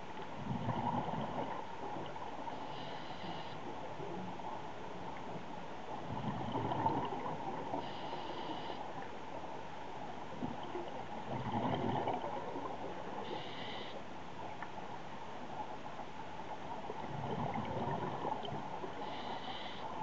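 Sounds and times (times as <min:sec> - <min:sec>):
exhaled bubbles gurgling underwater: 0:00.4 - 0:09.1, 0:10.3 - 0:13.9, 0:16.6 - 0:20.0
regulator inhalation hiss: 0:02.7 - 0:03.6, 0:13.3 - 0:14.0, 0:19.0 - 0:19.8.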